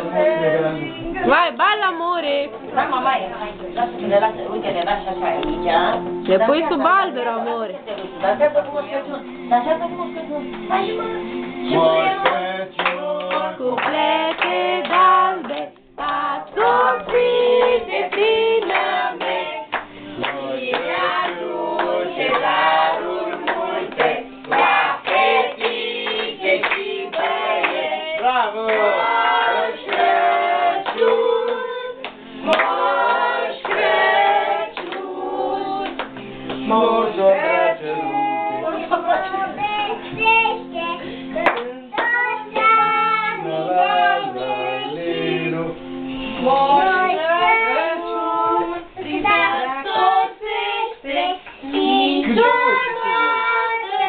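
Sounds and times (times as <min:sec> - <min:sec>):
group singing: 0:00.0 - 0:01.5, 0:11.0 - 0:54.0
hand clapping: 0:12.2 - 0:22.7, 0:23.3 - 0:28.9, 0:29.8 - 0:30.1, 0:30.8 - 0:32.9, 0:33.6 - 0:34.0, 0:34.8 - 0:35.1, 0:35.8 - 0:36.7, 0:41.4 - 0:42.7.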